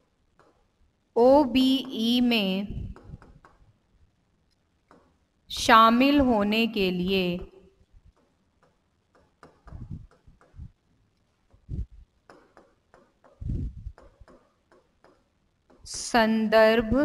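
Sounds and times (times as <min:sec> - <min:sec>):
pen tapping on whiteboard screen: 0:00.3 - 0:00.7, 0:02.9 - 0:03.7, 0:04.8 - 0:05.2, 0:08.1 - 0:10.7, 0:12.2 - 0:15.9.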